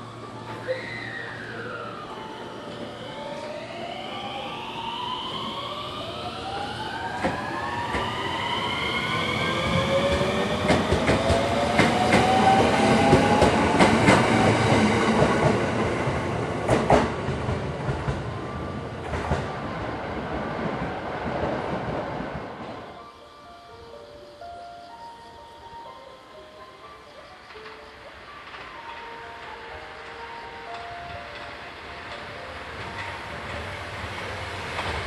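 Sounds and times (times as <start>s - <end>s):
electric train motors whining: 22.6s - 35.0s
wheels clicking over rail joints: 27.3s - 35.0s.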